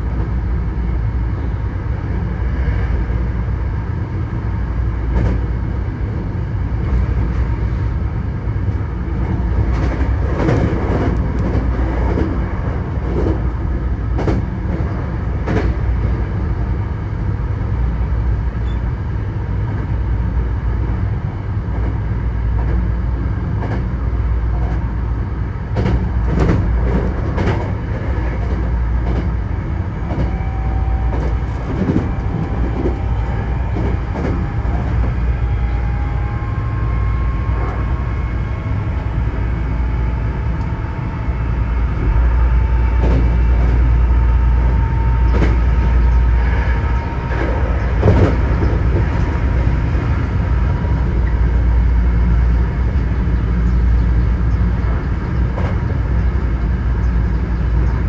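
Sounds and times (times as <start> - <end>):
train rumbling: 0.0 - 58.0
train wheels clacking: 9.2 - 15.9, 25.7 - 35.8, 41.9 - 50.1.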